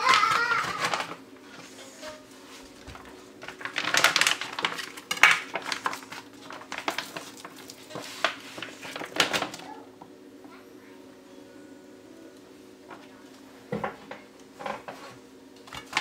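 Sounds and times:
plastic wrap crinkling and tearing: 0.0 - 1.2, 2.8 - 9.8
faint steady hum: 0.0 - 16.0.

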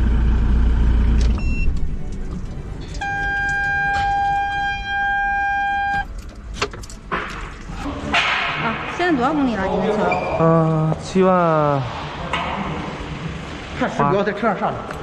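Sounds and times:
short high beep: 3.0 - 6.1.

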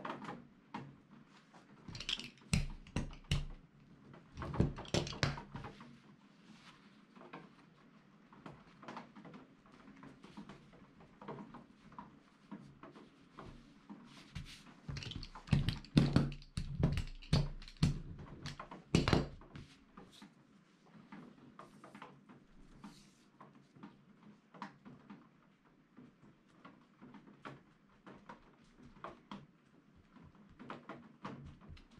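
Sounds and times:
hand roller knocking and rumbling: 1.9 - 3.7, 4.4 - 5.8, 14.4 - 19.7, 31.3 - 31.9
fabric being handled: 11.6 - 20.4.

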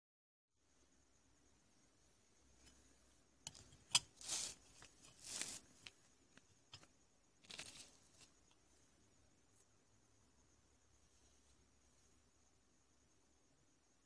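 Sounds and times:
paper rustling: 4.2 - 6.5, 7.4 - 8.4.

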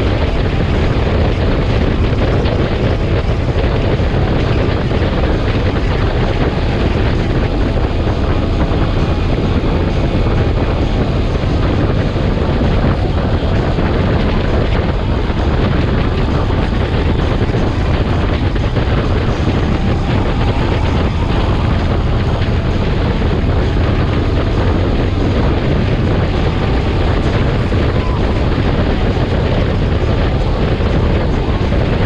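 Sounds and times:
engine and road rumble: 0.0 - 32.0
wind rush over microphone: 0.0 - 32.0.

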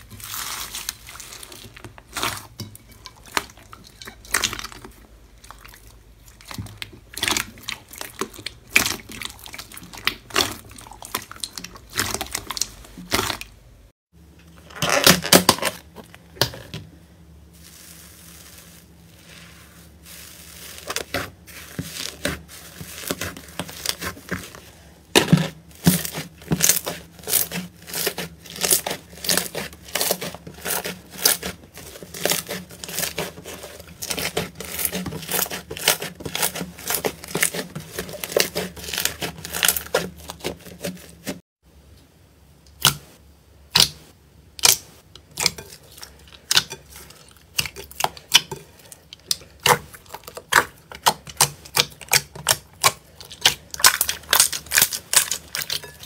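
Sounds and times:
slime popping and crackling: 25.1 - 40.5, 49.2 - 56.0.

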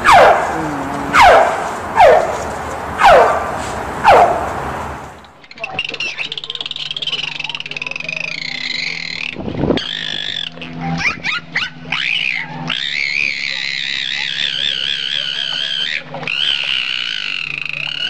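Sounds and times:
animal wavering high calls: 8.2 - 18.0
animal yelps: 9.9 - 18.0.

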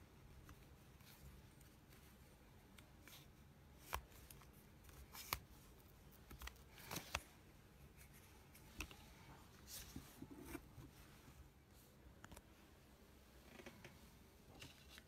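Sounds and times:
faint plastic handling noise: 0.4 - 12.6, 13.4 - 15.0.

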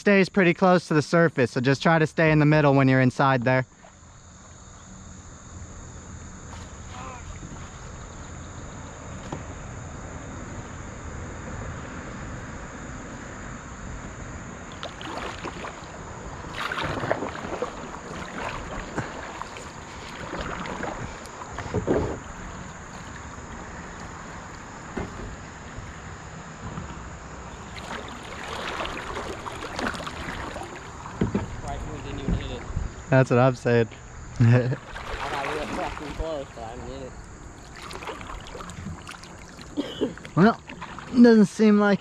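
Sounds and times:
high insect drone: 0.0 - 42.0
paddle splashing in water: 14.7 - 25.2, 27.4 - 32.8, 34.7 - 41.4
wind rumble on microphone: 30.4 - 33.2.

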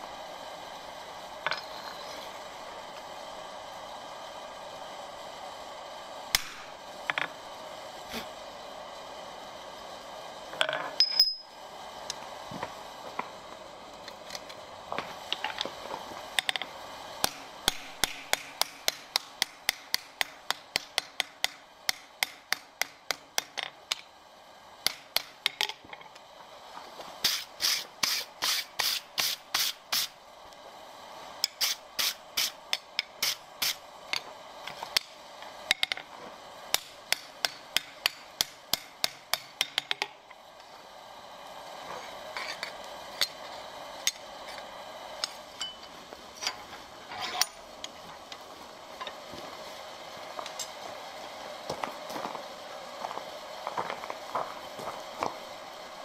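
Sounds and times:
hammer striking steel on anvil: 11.0 - 11.5, 17.2 - 23.7, 36.7 - 40.1, 45.2 - 46.6
brush scraping hot steel: 27.2 - 30.2, 31.4 - 33.8, 41.8 - 47.7.

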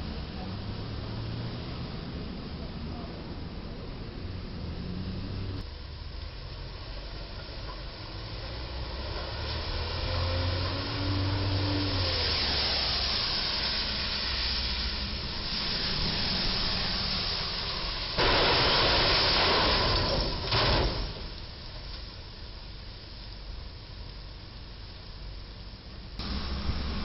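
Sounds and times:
low vehicle engine hum: 0.0 - 18.2, 21.3 - 27.0
tyres hissing on wet road: 0.0 - 27.0
sudden loud hiss: 10.0 - 21.8, 26.2 - 27.0.

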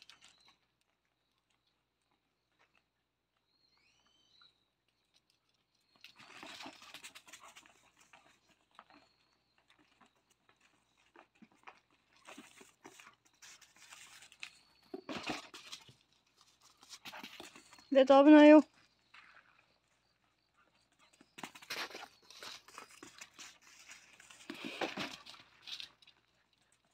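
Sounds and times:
puppies' paws scuffling: 5.2 - 26.9
faint high squeaks: 5.8 - 19.4.

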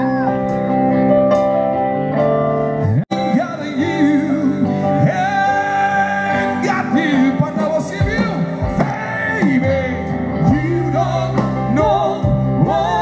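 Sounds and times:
live band playing: 0.0 - 13.0
man singing: 3.0 - 13.0.

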